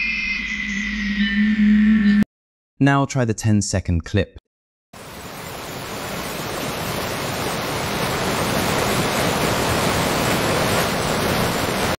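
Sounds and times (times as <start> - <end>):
waterfall rushing: 5.0 - 12.0.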